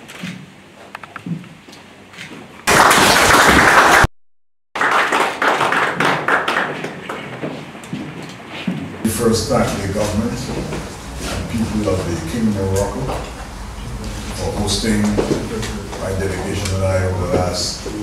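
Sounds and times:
applause: 0:02.7 - 0:04.1, 0:04.8 - 0:07.4.

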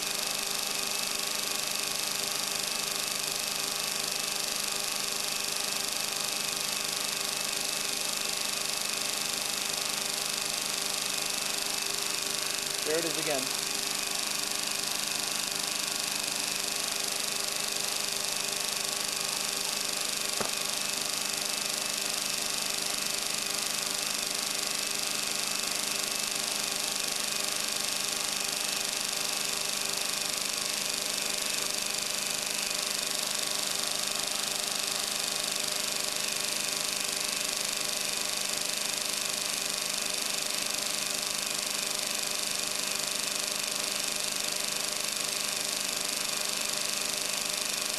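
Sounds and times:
motor rotors humming and whining: 0:04.6 - 0:42.6
sharp click: 0:20.4 - 0:20.7.

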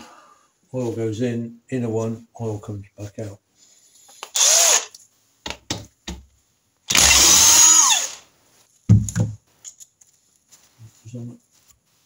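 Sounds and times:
impact driver motor whine: 0:06.9 - 0:08.2
tool set down thumps: 0:08.9 - 0:09.4.

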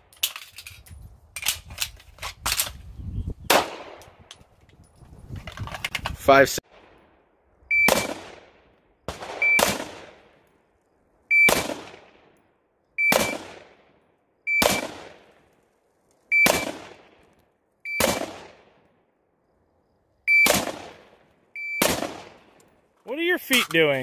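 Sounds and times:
rifle shots with echo: 0:03.5 - 0:04.2, 0:06.7 - 0:10.5, 0:11.3 - 0:15.5, 0:16.3 - 0:19.0, 0:20.3 - 0:22.7.

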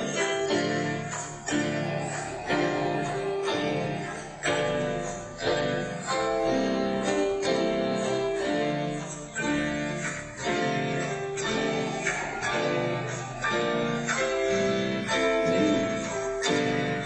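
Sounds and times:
instrumental music with chords: 0:00.0 - 0:17.0.

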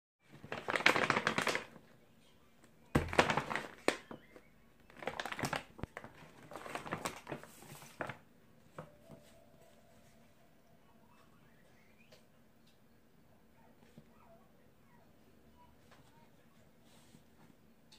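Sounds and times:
paper bag rustling and crinkling: 0:00.2 - 0:01.9, 0:02.9 - 0:09.4.

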